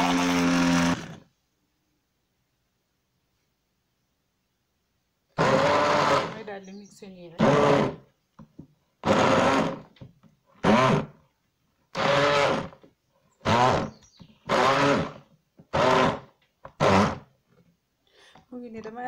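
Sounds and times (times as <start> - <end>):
blender chopping chunks: 0.0 - 1.2, 5.4 - 6.4, 7.4 - 8.0, 9.0 - 10.0, 10.6 - 11.2, 12.0 - 12.8, 13.4 - 17.3
stick blender motor whining: 0.0 - 1.3, 5.4 - 6.4, 7.4 - 8.1, 9.0 - 10.0, 10.6 - 11.2, 11.9 - 17.3.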